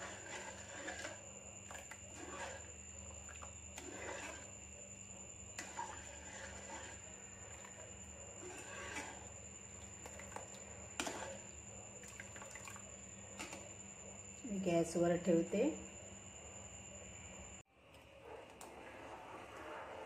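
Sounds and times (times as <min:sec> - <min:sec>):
spoon stirring thick syrup: 0:00.0 - 0:13.7, 0:18.4 - 0:20.0.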